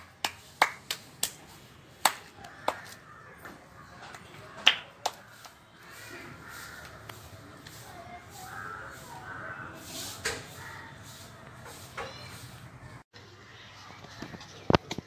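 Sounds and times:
child clapping hands: 0:00.0 - 0:01.4, 0:02.0 - 0:03.0, 0:04.1 - 0:05.6.

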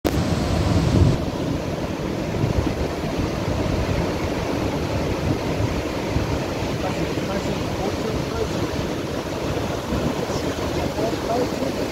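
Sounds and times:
surf breaking over rocks: 0:00.1 - 0:11.9
wind buffeting microphone: 0:00.1 - 0:11.9.

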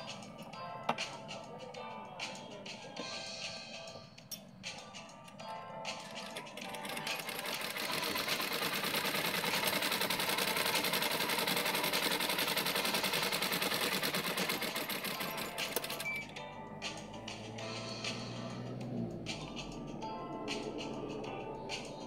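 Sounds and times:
sewing machine stitching: 0:06.0 - 0:16.3.

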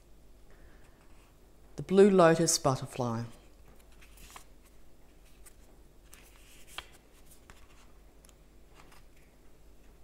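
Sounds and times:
book pages turning: 0:03.6 - 0:09.3.

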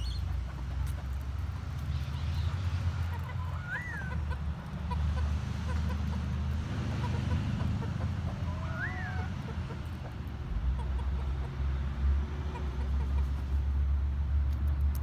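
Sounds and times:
faint chicken clucks: 0:03.0 - 0:13.6
hen call rising and falling: 0:03.2 - 0:04.4, 0:08.3 - 0:09.6.

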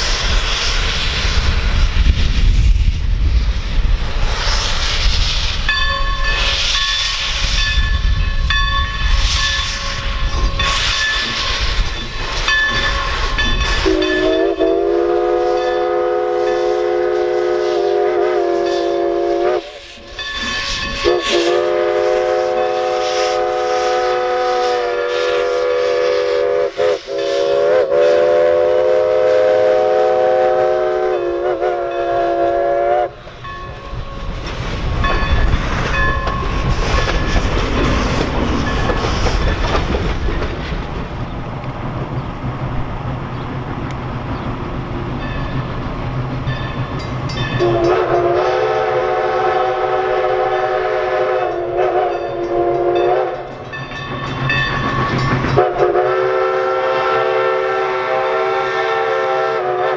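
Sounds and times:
train rolling noise: 0:00.0 - 0:59.9
steam locomotive whistle: 0:04.4 - 0:34.3, 0:47.3 - 0:53.8, 0:55.4 - 0:59.9
wheels clacking over rail joints: 0:33.3 - 0:48.3, 0:52.1 - 0:55.8.

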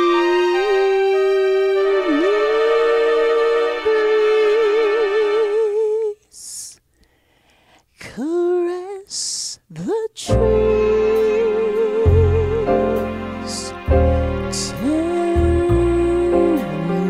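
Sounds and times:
woman singing with vibrato: 0:00.0 - 0:06.9, 0:08.0 - 0:13.9, 0:14.5 - 0:17.0
singer breathing: 0:06.3 - 0:08.0
deep bass accompaniment: 0:10.3 - 0:17.0.

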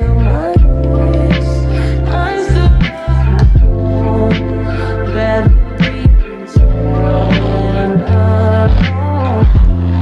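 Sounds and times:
deep sustained bass: 0:00.0 - 0:10.0
music with steady beat: 0:00.0 - 0:10.0.

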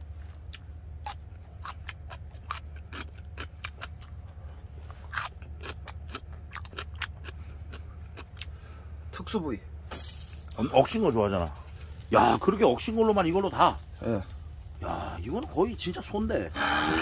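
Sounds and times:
low hum: 0:00.0 - 0:17.0
wet chewing: 0:00.3 - 0:08.6.

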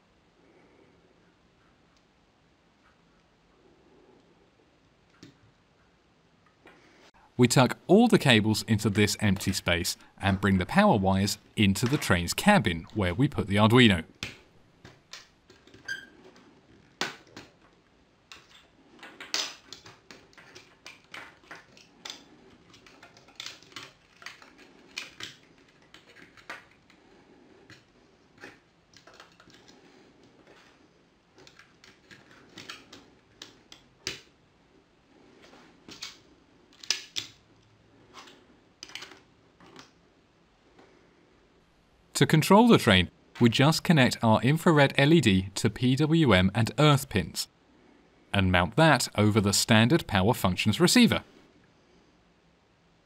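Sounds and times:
plastic bricks clicking and rattling: 0:18.3 - 0:27.0, 0:27.7 - 0:34.2.

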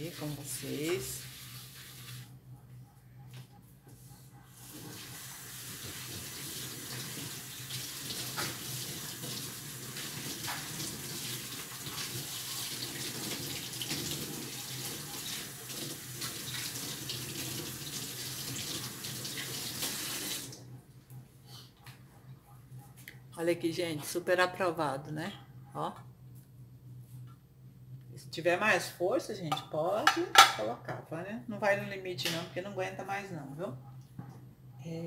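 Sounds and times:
water running from tap: 0:00.0 - 0:02.3, 0:04.6 - 0:20.6.

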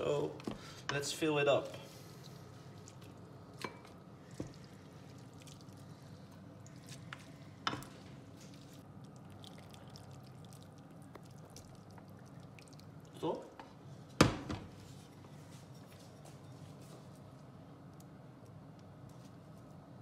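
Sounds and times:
steady low hum: 0:00.0 - 0:20.0
wet noodles squishing: 0:02.0 - 0:13.4.

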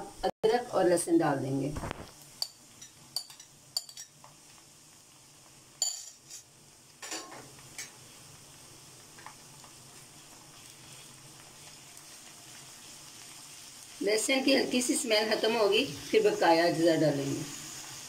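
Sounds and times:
onions sizzling in oil: 0:00.1 - 0:18.0
utensils knocking against pan: 0:07.0 - 0:07.9.

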